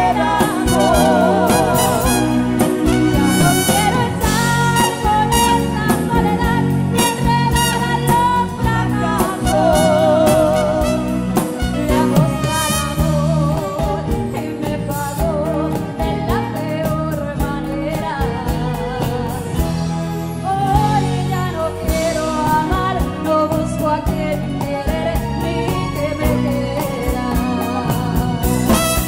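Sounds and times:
acoustic guitar: 0.0s - 29.0s
drums: 0.0s - 29.0s
keyboard: 0.0s - 29.0s
woman singing: 0.0s - 29.0s.

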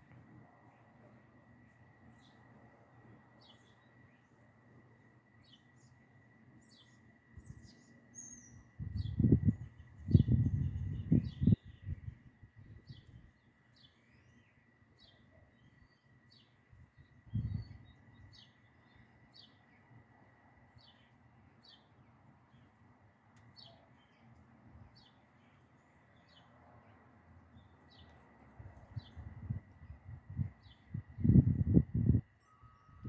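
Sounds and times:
bird chirping: 0.4s - 2.7s, 3.3s - 4.6s, 5.2s - 20.0s, 20.8s - 22.8s, 23.4s - 31.4s, 32.0s - 33.0s
faint high-pitched tone: 32.0s - 33.0s.

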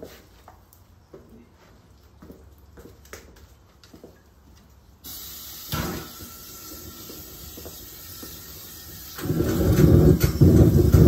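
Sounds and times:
gas hissing: 5.0s - 11.0s
burner rumbling: 8.0s - 11.0s.

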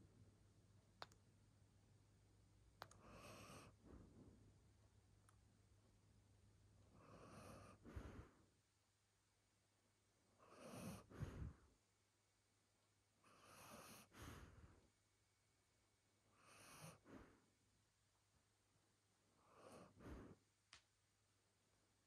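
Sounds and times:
dog breathing deeply in sleep: 3.0s - 4.4s, 6.9s - 8.5s, 10.4s - 11.7s, 13.3s - 14.8s, 16.4s - 17.5s, 19.4s - 20.4s.

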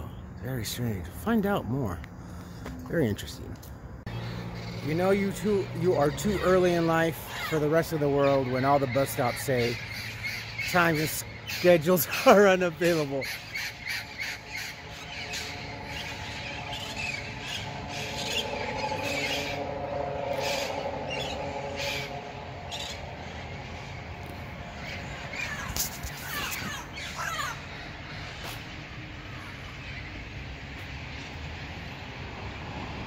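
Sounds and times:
vehicle engine humming: 0.0s - 33.0s
parrots squawking: 4.1s - 30.1s.

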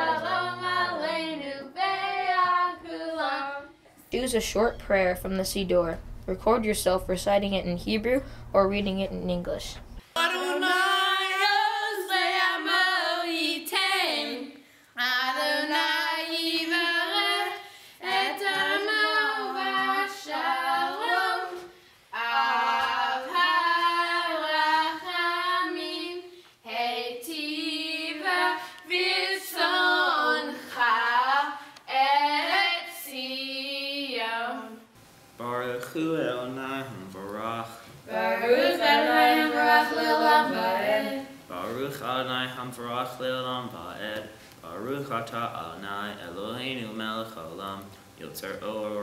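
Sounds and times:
girls singing unaccompanied: 0.0s - 3.9s, 10.2s - 34.9s, 38.1s - 41.5s.

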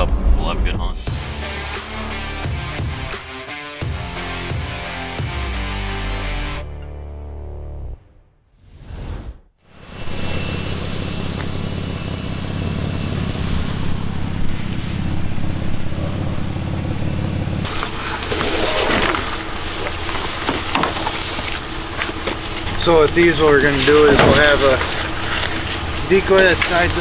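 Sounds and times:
engine idling: 9.8s - 27.0s
gear clattering and knocking: 17.2s - 27.0s.

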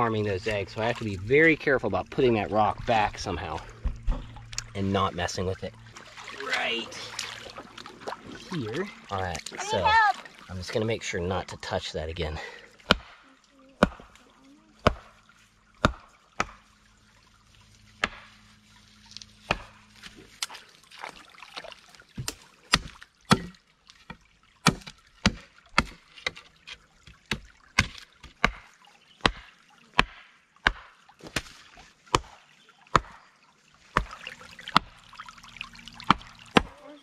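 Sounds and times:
rock pounding stakes: 12.8s - 13.2s.

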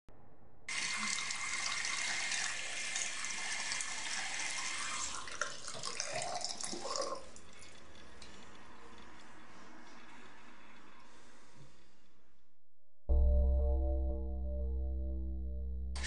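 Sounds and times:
water running: 0.7s - 11.6s.

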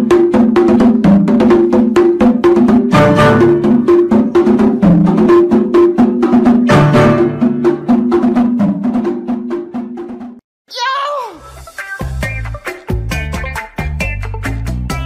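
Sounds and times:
background music with repeating melody: 0.0s - 10.3s.

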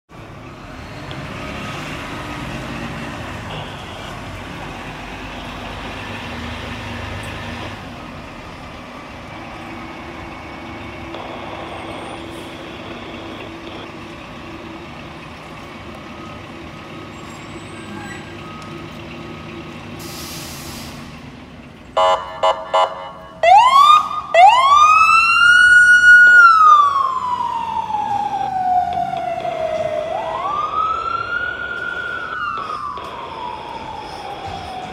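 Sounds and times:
fire engine rumble: 0.1s - 34.9s
siren wailing: 10.5s - 14.0s, 22.0s - 34.9s.

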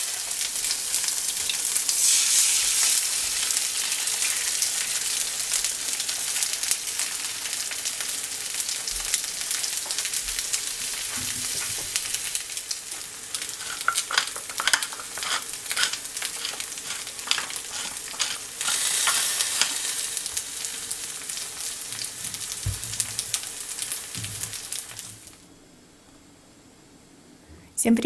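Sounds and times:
food sizzling in a frying pan: 0.0s - 25.5s
pepper mill grinding: 13.0s - 20.2s.

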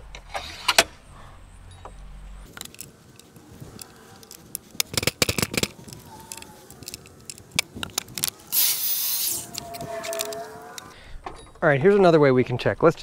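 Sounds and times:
saw parts clicking and knocking: 1.9s - 11.4s.

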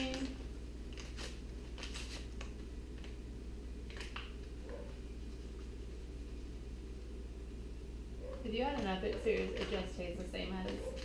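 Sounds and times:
paper packet rustling: 0.0s - 3.2s
steady low hum: 0.0s - 11.0s.

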